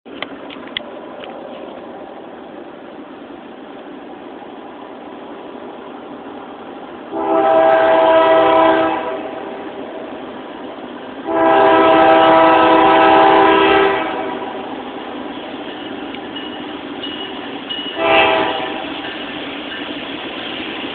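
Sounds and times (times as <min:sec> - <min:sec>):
locomotive air horn blasts: 0:07.1 - 0:09.6, 0:11.2 - 0:14.7, 0:17.9 - 0:19.0.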